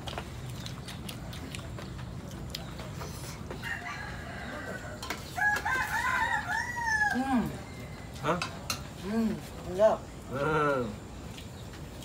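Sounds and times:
roosters crowing: 3.4s - 8.7s.

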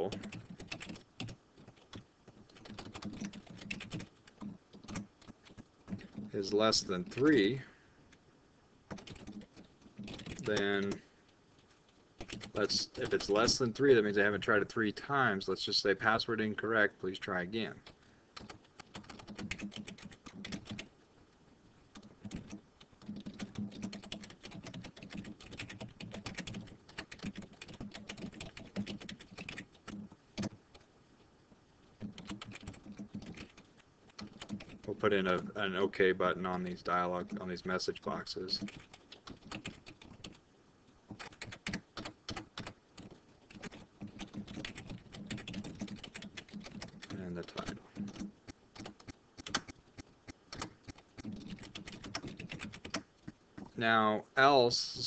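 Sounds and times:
computer keyboard typing: 0.0s - 7.4s, 8.9s - 11.0s, 12.2s - 13.6s, 17.8s - 20.9s, 21.9s - 30.8s, 32.0s - 35.5s, 38.6s - 40.4s, 41.1s - 53.1s.

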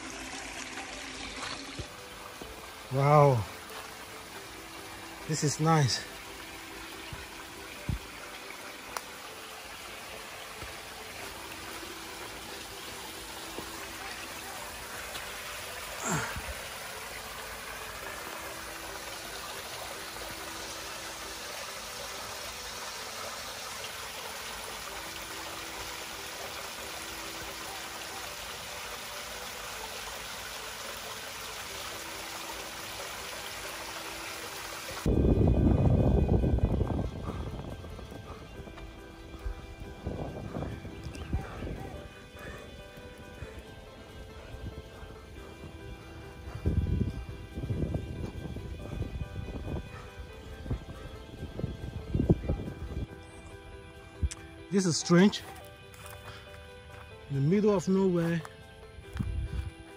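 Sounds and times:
stream splashing over rocks: 0.0s - 37.7s.

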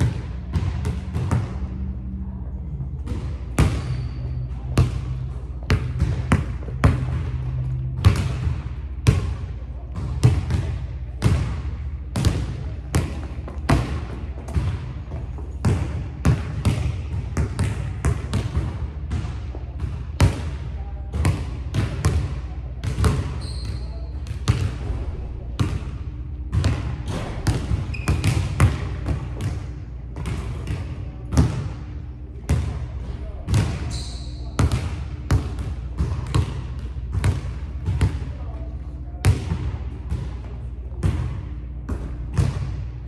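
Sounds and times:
steady low hum: 0.0s - 43.0s
basketball bouncing on wood floor: 34.6s - 38.1s.

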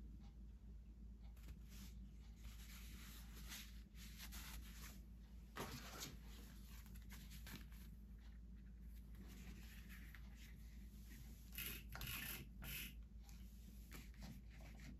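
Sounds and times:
low steady hum: 0.0s - 14.9s
cloth rustling: 1.7s - 11.5s.

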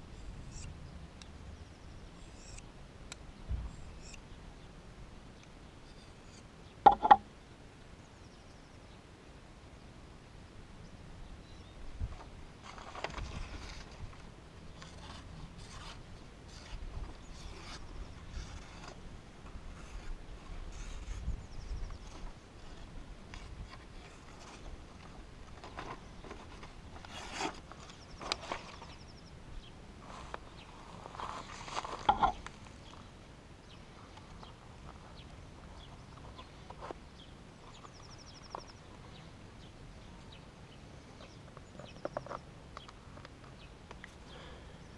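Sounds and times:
high bird trills: 1.7s - 2.6s.

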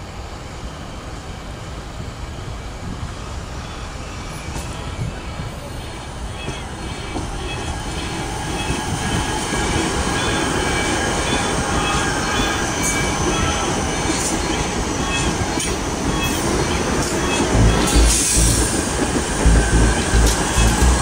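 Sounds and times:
train wheels rushing on rails: 0.0s - 21.0s
high squealing tones: 17.2s - 18.8s, 19.4s - 21.0s.

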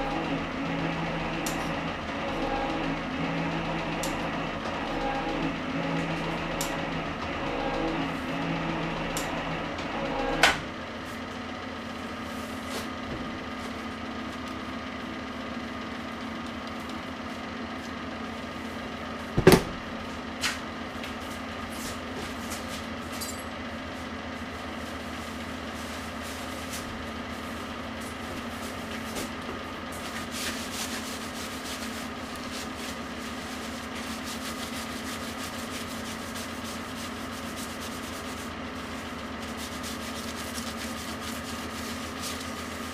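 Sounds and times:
electric motor humming: 0.0s - 10.7s
metal shaper stroking: 29.9s - 42.9s
cloth rubbing on steel: 30.0s - 42.9s.

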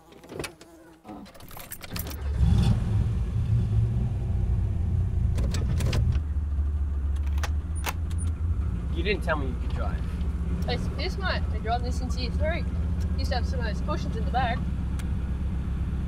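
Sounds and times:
keys jingling in ignition: 0.0s - 2.6s
pickup engine starting and idling: 1.4s - 16.0s.

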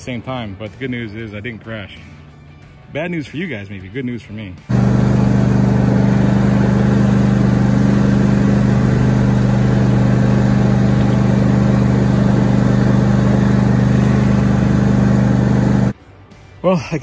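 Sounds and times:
lawn tractor engine running: 4.7s - 16.0s.

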